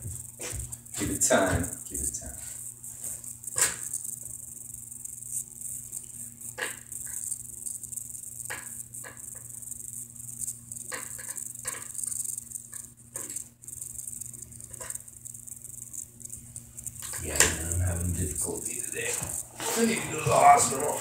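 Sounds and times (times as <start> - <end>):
high hiss: 0.0 - 21.0
low hum: 13.7 - 21.0.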